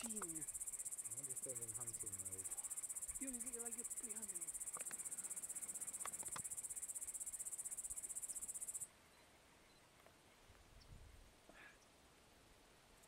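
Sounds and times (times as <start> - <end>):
crickets chirping: 0.0 - 8.9
faint clicks: 4.6 - 6.6.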